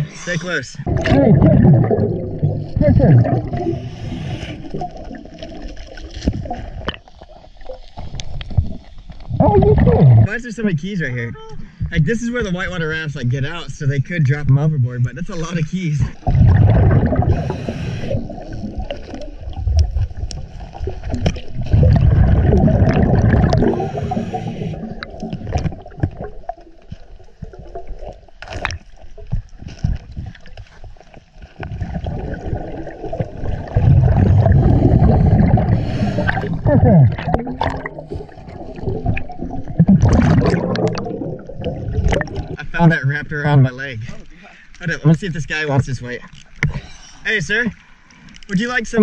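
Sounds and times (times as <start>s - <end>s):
diver bubbles gurgling underwater: 0.8s - 10.3s, 16.1s - 30.5s, 31.6s - 42.8s.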